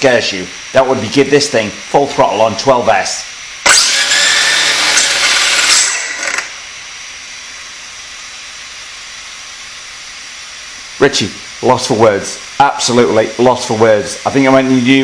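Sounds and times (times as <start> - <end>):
quiet steady whir: 0.0 - 15.0
electric motor high whine: 3.6 - 8.7.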